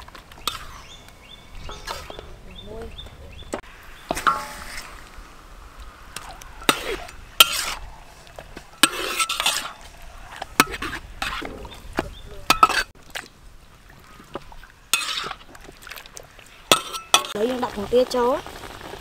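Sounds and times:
metal ladle scraping a wok: 0.4s - 1.0s, 1.6s - 2.3s, 4.1s - 5.2s, 6.2s - 11.8s, 12.5s - 12.9s, 14.9s - 15.6s, 16.7s - 17.4s.

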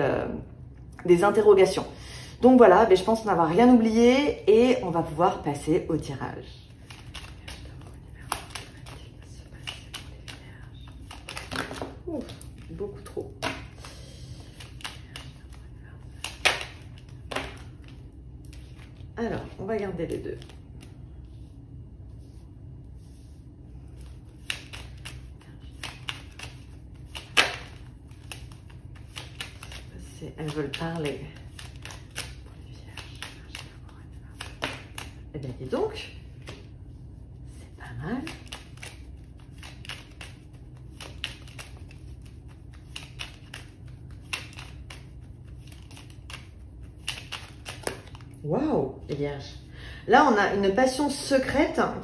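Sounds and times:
cards being shuffled: 6.6s - 21.5s, 23.0s - 36.7s, 38.2s - 48.4s.

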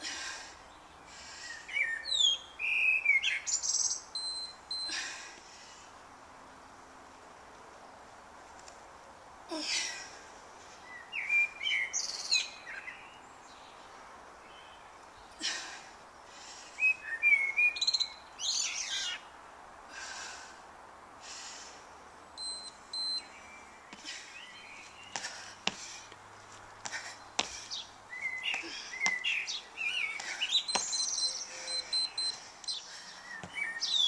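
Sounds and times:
faint background hiss: 0.0s - 34.0s
birds chirping and singing: 1.5s - 4.3s, 27.2s - 34.0s.

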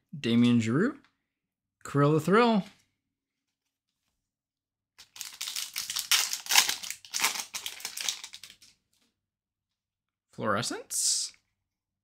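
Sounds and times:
foil wrapper tearing and crinkling: 5.0s - 8.7s.

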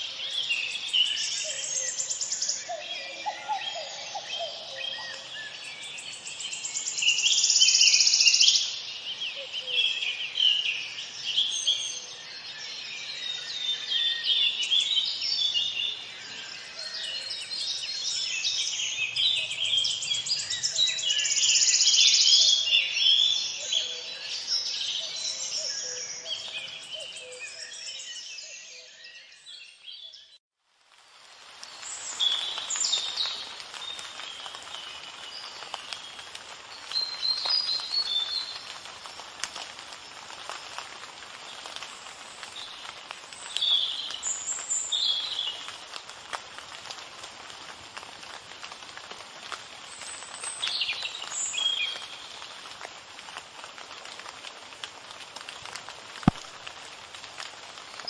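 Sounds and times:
songbirds chirping and singing: 0.0s - 30.4s.

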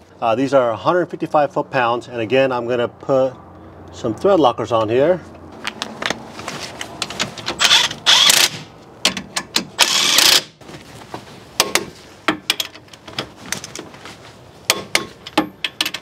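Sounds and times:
impact wrench bursts: 7.6s - 8.7s, 9.7s - 10.6s.

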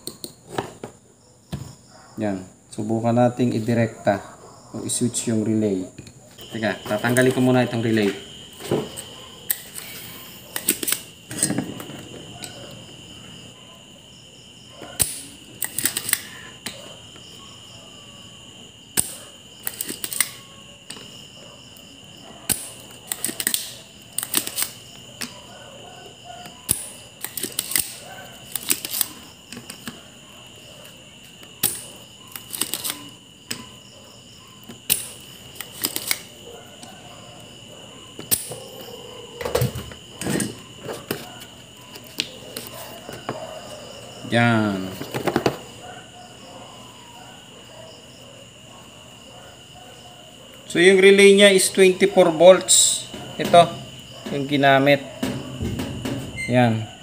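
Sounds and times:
desoldering pump clicks and snaps: 19.0s - 20.4s, 22.5s - 25.3s, 26.7s - 29.9s.

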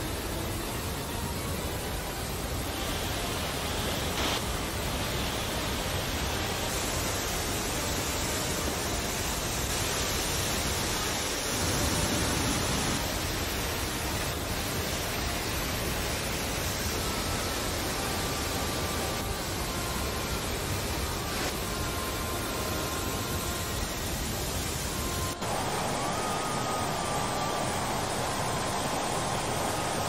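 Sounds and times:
water rushing and crashing: 25.4s - 30.0s.

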